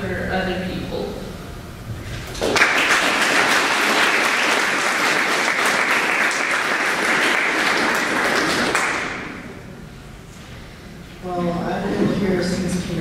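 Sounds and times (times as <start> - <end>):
audience applauding: 2.2 - 9.5.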